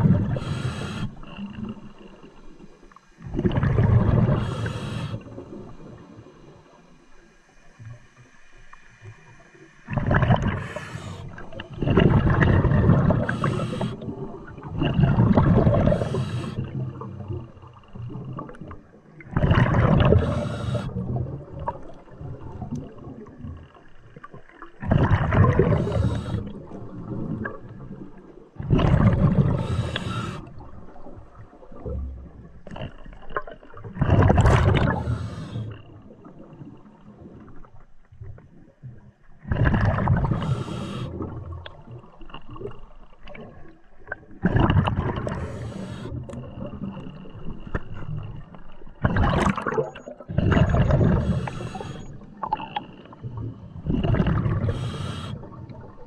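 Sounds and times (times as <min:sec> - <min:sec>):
bubbles gurgling: 0:00.0 - 0:00.5, 0:03.2 - 0:04.6, 0:09.8 - 0:23.6, 0:24.2 - 0:37.4, 0:39.4 - 0:56.0
diver breathing through regulator: 0:00.2 - 0:01.5, 0:04.2 - 0:05.5, 0:10.3 - 0:11.6, 0:12.9 - 0:14.2, 0:15.7 - 0:16.9, 0:20.0 - 0:21.1, 0:25.4 - 0:26.6, 0:29.2 - 0:30.6, 0:34.8 - 0:35.9, 0:40.2 - 0:41.4, 0:45.2 - 0:46.7, 0:50.4 - 0:52.4, 0:53.9 - 0:55.7.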